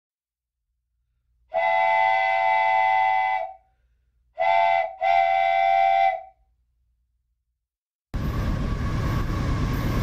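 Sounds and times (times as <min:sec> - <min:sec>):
locomotive air horn blasts: 0:01.5 - 0:03.6, 0:04.4 - 0:06.3.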